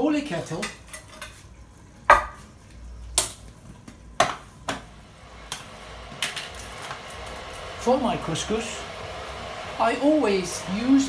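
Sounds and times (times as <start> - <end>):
electric kettle hissing: 4.7 - 11.0.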